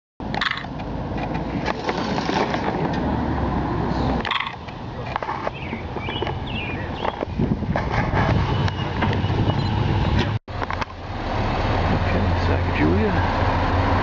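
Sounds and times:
scattered clicks and knocks: 0:00.3 - 0:03.0.

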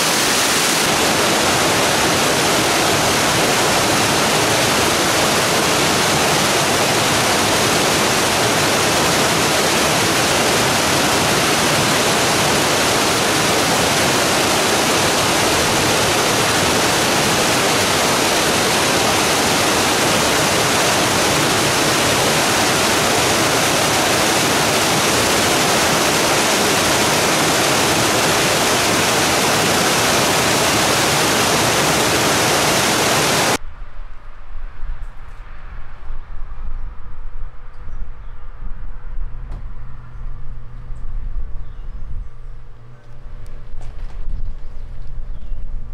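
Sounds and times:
water rushing over rocks: 0:00.0 - 0:33.6.

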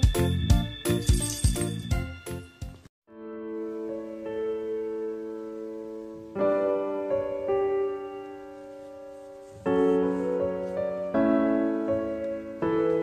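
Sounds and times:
slow piano chords: 0:03.1 - 0:13.0.

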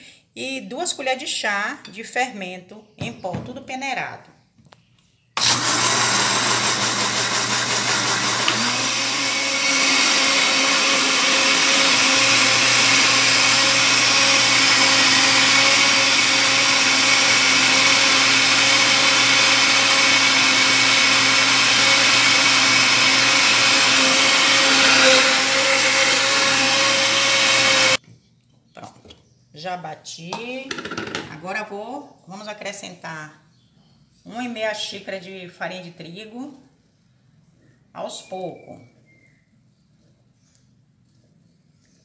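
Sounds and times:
blender running: 0:05.4 - 0:28.0.

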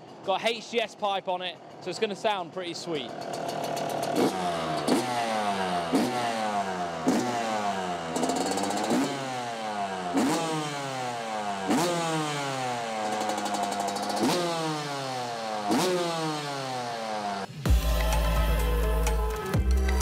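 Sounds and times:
two-stroke engine revving: 0:02.9 - 0:18.8.

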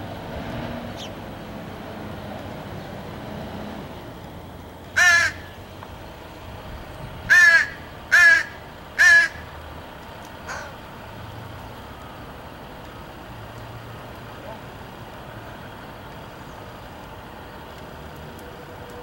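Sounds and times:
crow cawing: 0:05.0 - 0:05.6, 0:07.3 - 0:09.5, 0:10.4 - 0:10.8.

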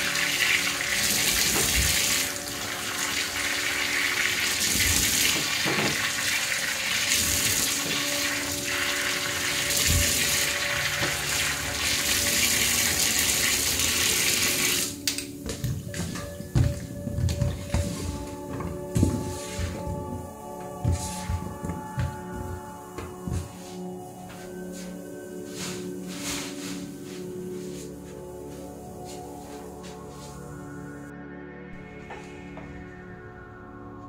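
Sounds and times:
water splashing over bananas: 0:00.0 - 0:15.0
tap water running into sink: 0:00.0 - 0:16.8.

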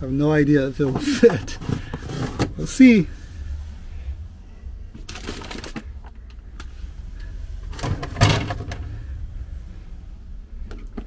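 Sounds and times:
plastic box clattering: 0:07.7 - 0:08.9.

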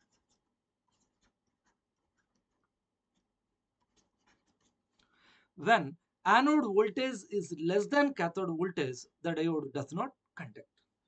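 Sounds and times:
pen writing: 0:00.0 - 0:03.2.

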